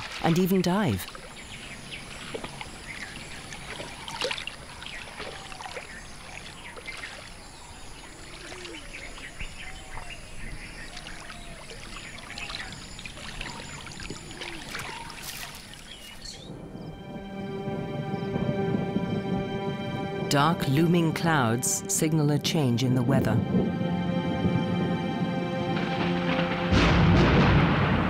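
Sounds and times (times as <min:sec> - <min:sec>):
water splashing and lapping: 0:00.0 - 0:16.7.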